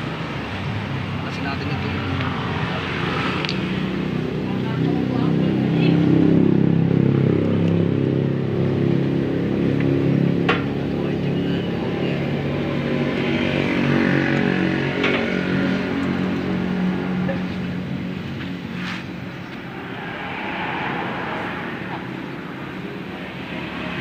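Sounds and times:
engine running: 14.0 - 24.0.

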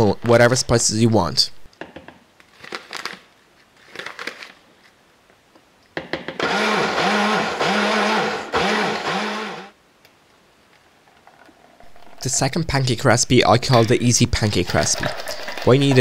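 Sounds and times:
blender blending: 6.4 - 9.7.

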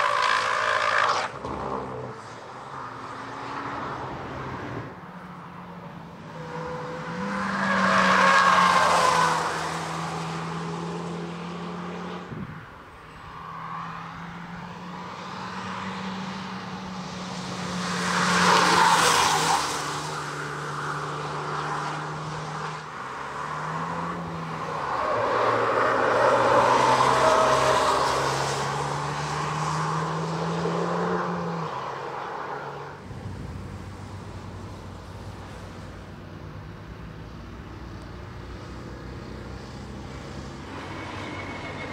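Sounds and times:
car passing by: 13.5 - 36.0.

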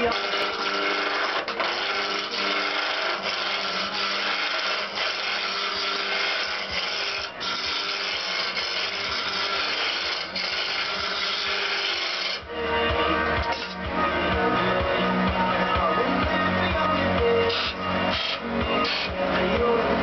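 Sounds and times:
wood lathe spinning: 0.0 - 20.0.

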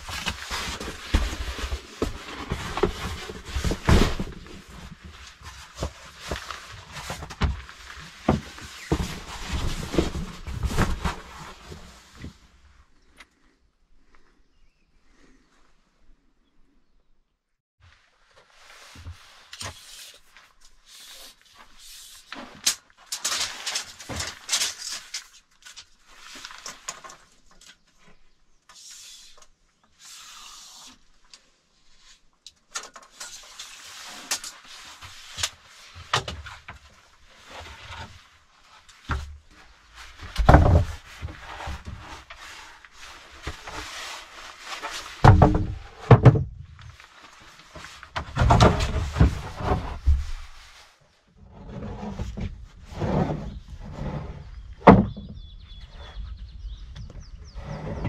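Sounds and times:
rustling: 0.0 - 14.4, 17.8 - 55.3
heavy timber thumps: 45.2 - 46.7.

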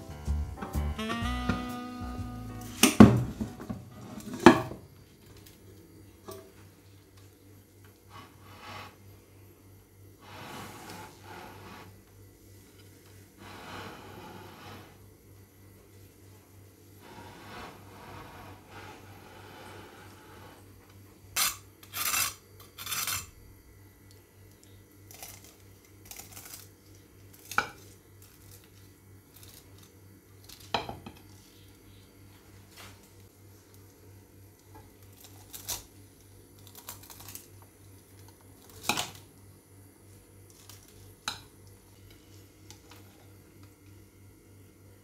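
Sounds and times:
knife crunching through crisp crust: 21.4 - 23.4, 25.1 - 30.7, 35.0 - 37.7.

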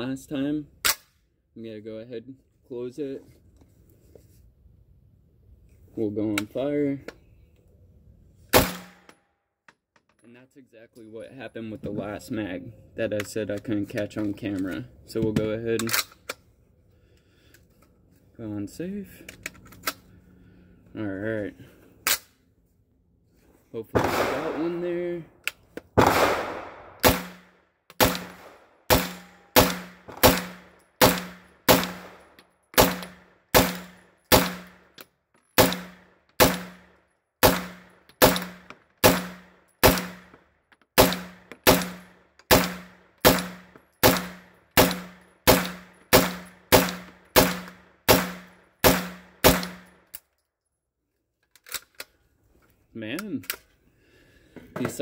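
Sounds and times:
pistol gunshots with ringing tail: 24.0 - 25.0, 26.0 - 27.4, 28.0 - 32.2, 32.8 - 34.8, 37.4 - 40.3, 41.0 - 49.8.

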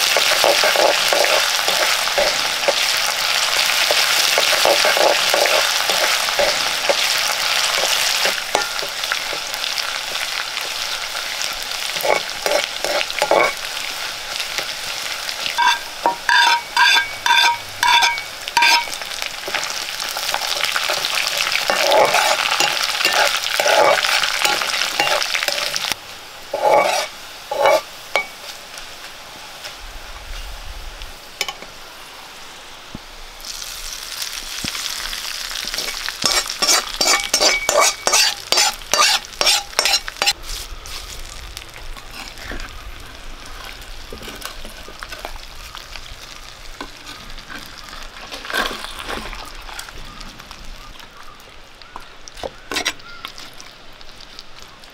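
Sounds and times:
spoon scraping pan: 0.0 - 9.6, 11.9 - 13.7, 15.4 - 28.6, 35.6 - 40.6, 52.4 - 53.5
food sizzling in oil: 0.0 - 54.9
spoon tapping metal pan: 15.6 - 19.6, 21.7 - 25.8, 35.8 - 40.4.

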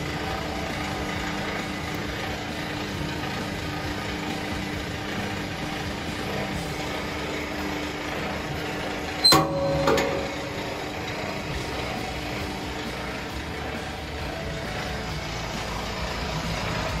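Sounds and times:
paddle mixer motor hum: 0.0 - 17.0.

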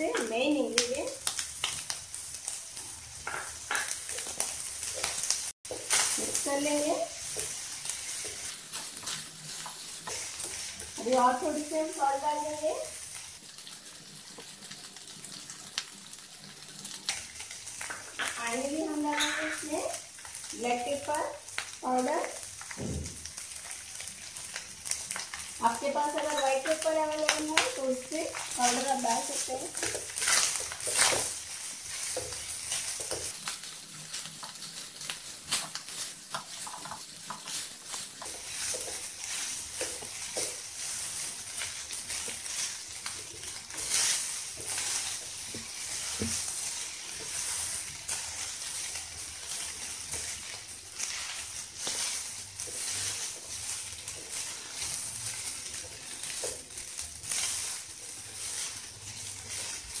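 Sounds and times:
fried rice sizzling: 0.0 - 60.0
spatula scraping a pan: 28.2 - 60.0.

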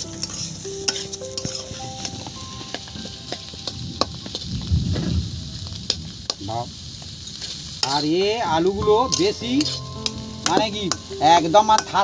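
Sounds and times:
spatula scraping a pan: 0.0 - 2.3, 7.3 - 8.2, 8.9 - 12.0
food sizzling in a pan: 0.0 - 12.0.

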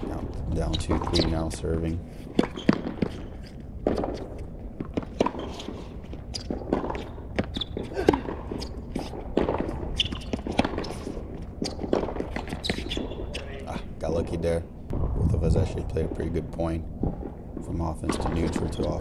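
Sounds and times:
rackets striking tennis ball: 0.0 - 13.5, 17.0 - 19.0
players' footsteps: 0.0 - 14.6
tennis ball bouncing: 0.7 - 13.4.

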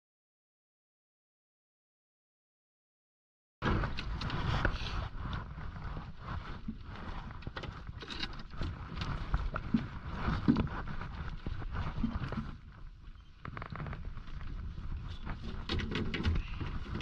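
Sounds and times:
water slapping boat hull: 3.6 - 17.0.

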